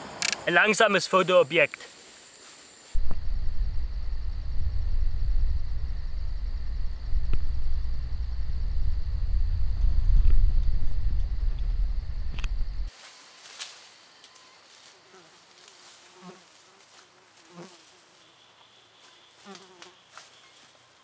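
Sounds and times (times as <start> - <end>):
cicadas droning: 0.0 - 21.0
vehicle driving rumble: 3.0 - 12.9.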